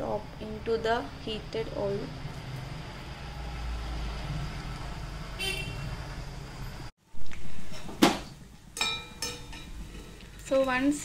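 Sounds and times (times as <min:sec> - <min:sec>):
vehicle horn toot: 0:05.4 - 0:06.0
batter frying in hot oil: 0:08.7 - 0:11.0.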